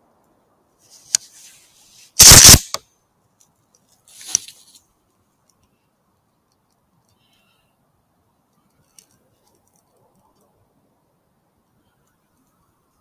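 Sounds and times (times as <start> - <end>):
sharp clicks: 2.2 - 2.8.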